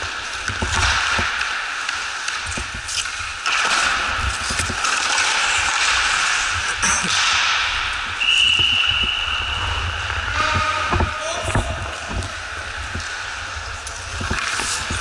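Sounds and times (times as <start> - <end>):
skates scraping on ice: 0.0 - 15.0
stick and puck knocks: 0.4 - 9.2
referee's whistle blast: 8.2 - 9.8.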